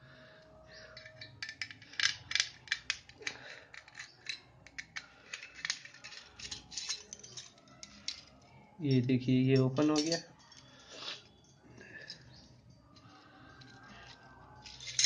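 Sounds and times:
screwdriver clicking and scraping metal: 0:00.9 - 0:08.3.

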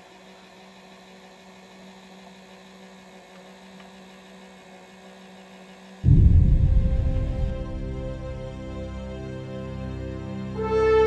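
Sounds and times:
low electrical hum: 0:06.0 - 0:09.6.

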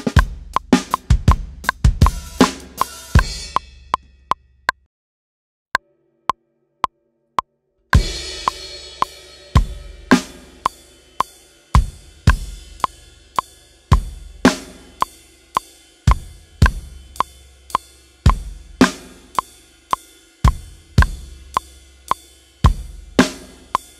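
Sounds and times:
rock drum kit groove: 0:00.0 - 0:04.0, 0:08.0 - 0:23.9
metronome click: 0:00.0 - 0:04.8, 0:08.4 - 0:09.2, 0:10.1 - 0:11.3, 0:12.3 - 0:13.5, 0:15.0 - 0:18.4.

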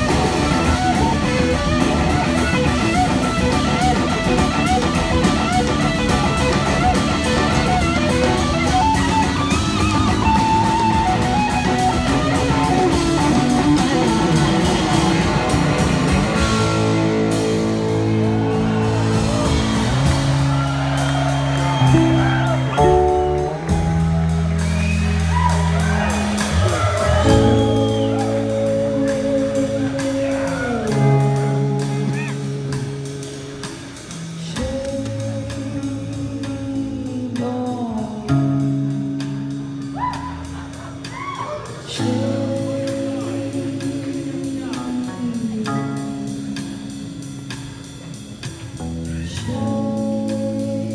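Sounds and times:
live band playing loudly: 0:00.0 - 0:50.9
woman singing: 0:34.4 - 0:38.8, 0:41.9 - 0:46.9, 0:49.2 - 0:50.9.

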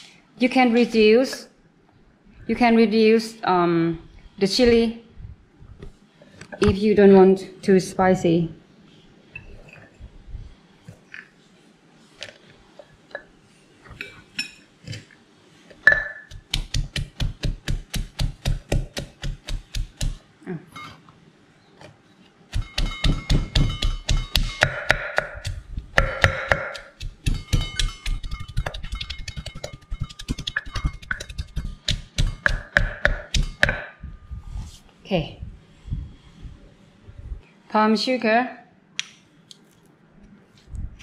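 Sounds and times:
pestle pounding in clay mortar: 0:15.9 - 0:20.2, 0:22.5 - 0:34.0.

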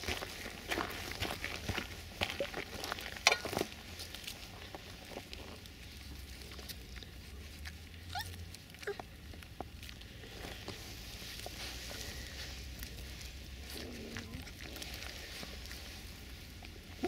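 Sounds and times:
puppies rustling through grass: 0:03.6 - 0:17.0
high puppy squeaks: 0:08.1 - 0:09.0.

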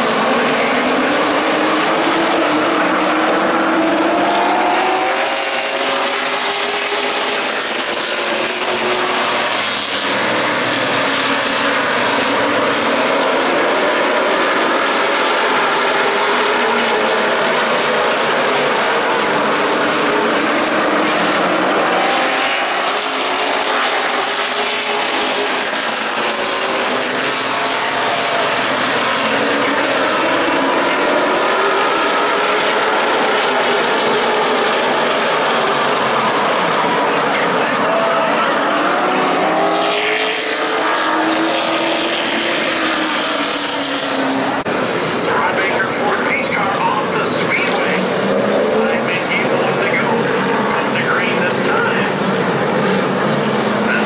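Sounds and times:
race car engines: 0:00.0 - 0:54.0.

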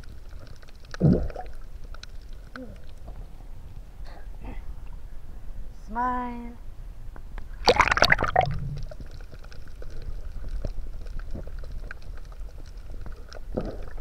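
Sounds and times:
water bubbling: 0:00.0 - 0:03.4, 0:07.6 - 0:14.0
faint clicks and crackles: 0:00.0 - 0:03.9, 0:07.1 - 0:14.0
splash into water: 0:07.6 - 0:08.6.

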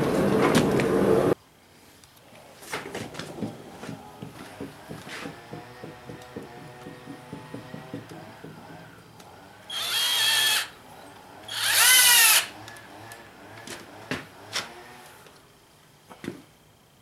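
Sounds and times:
sharp knocks: 0:03.3 - 0:09.0
drill driving screw into wood: 0:09.7 - 0:10.8, 0:11.5 - 0:12.6.

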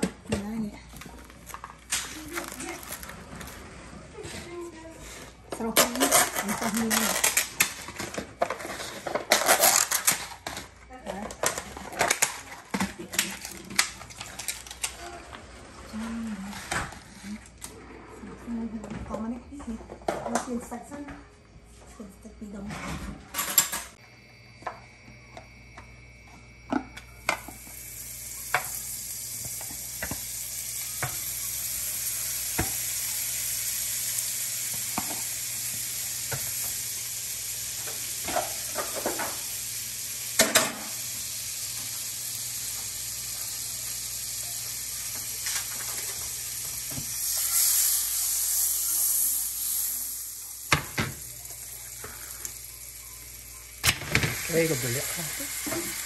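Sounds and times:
butter sizzling in frying pan: 0:27.2 - 0:56.0.

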